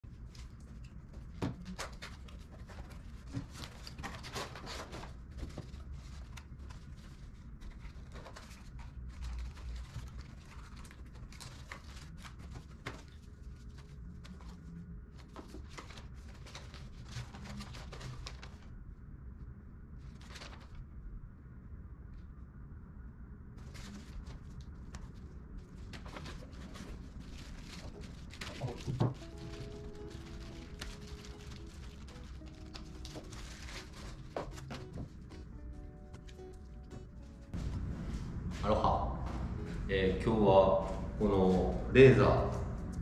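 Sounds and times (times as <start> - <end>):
cardboard and paper rustling: 0.1 - 18.7, 20.0 - 20.8, 23.6 - 37.9.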